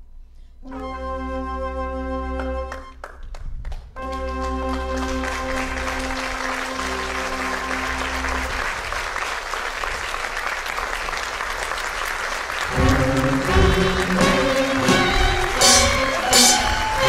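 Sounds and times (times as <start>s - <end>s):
held musical chord: 0.6s - 3.0s, 4.0s - 8.8s, 12.7s - 17.0s
audience applauding: 2.3s - 17.0s
loud music: 12.7s - 17.0s.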